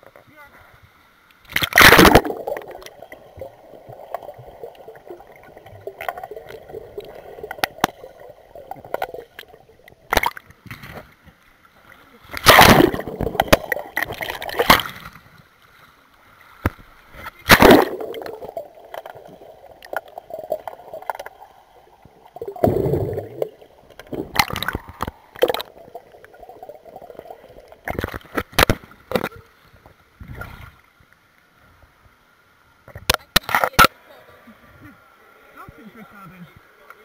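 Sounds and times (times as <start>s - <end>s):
underwater gurgling and sloshing: 0.8s - 35.8s
sharp knocks and splashes: 1.5s - 2.9s, 8.7s - 11.1s, 12.3s - 15.3s, 16.6s - 21.3s, 22.4s - 25.8s, 27.8s - 29.3s.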